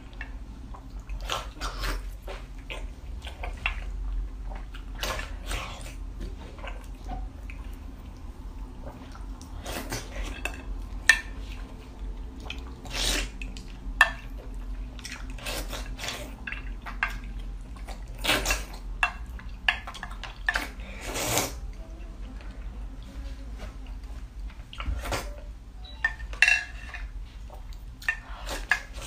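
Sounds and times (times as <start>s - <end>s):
wet slurping: 12.5s - 13.6s, 20.6s - 21.6s.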